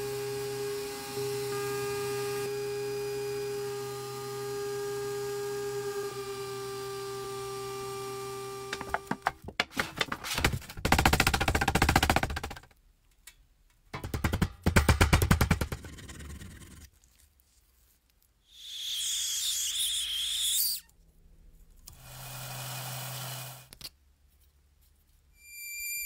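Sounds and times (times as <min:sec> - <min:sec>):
hammer tapping on sheet metal: 0:14.0 - 0:15.8.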